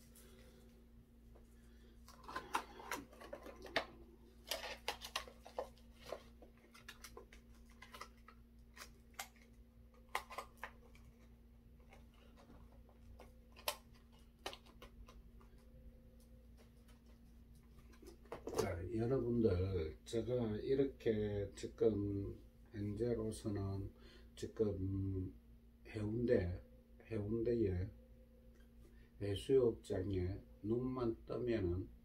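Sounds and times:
packaging rustling: 0:01.8 - 0:15.7.

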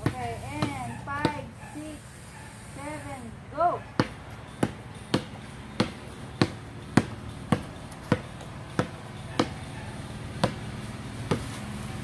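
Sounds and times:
basketball bouncing on concrete: 0:00.0 - 0:01.5, 0:03.9 - 0:11.6.

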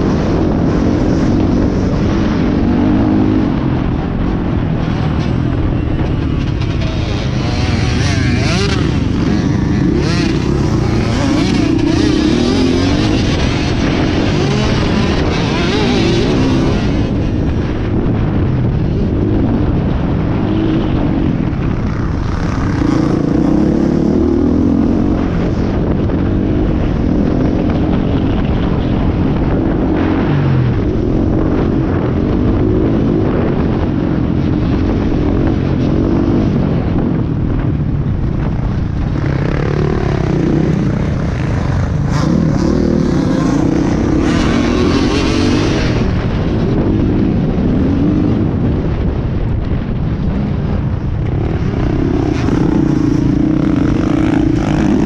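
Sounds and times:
dirt bike engine revving: 0:00.0 - 0:18.1, 0:39.0 - 0:49.0, 0:51.3 - 0:55.0
steady rush of noise: 0:00.0 - 0:55.0.

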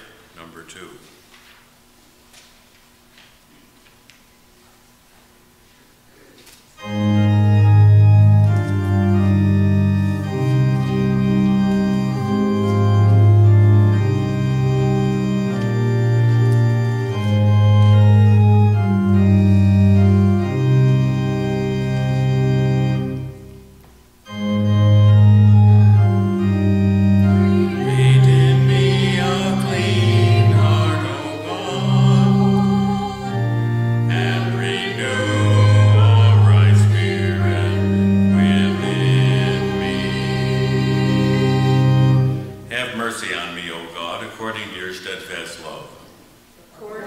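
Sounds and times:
organ playing hymn-like melody: 0:06.8 - 0:46.2.

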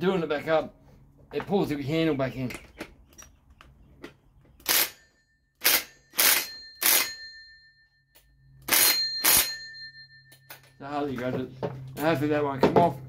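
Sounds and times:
cordless impact wrench bursts: 0:04.6 - 0:05.0, 0:05.6 - 0:07.1, 0:08.6 - 0:09.4.

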